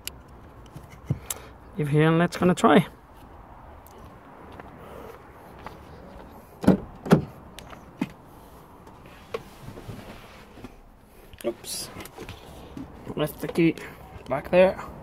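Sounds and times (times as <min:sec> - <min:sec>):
car door heavy clunks: 0:06.6 - 0:07.4.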